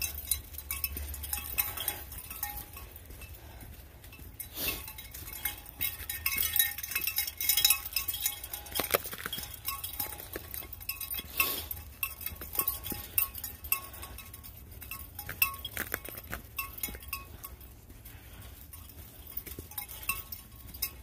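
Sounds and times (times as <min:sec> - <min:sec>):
light metallic clinking: 0:00.0 - 0:21.0.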